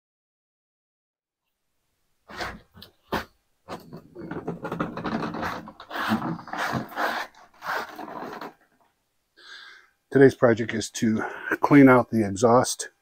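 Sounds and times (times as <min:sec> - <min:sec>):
generator scraping across floor: 0:02.3 - 0:08.6.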